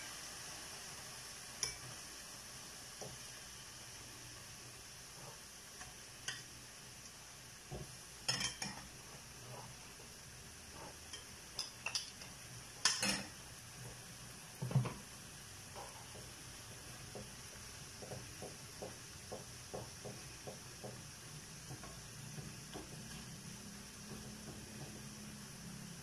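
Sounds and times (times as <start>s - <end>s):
meat sizzling in a pan: 0.0s - 26.0s
metal tongs clinking on pan: 8.3s - 8.9s, 11.1s - 13.4s.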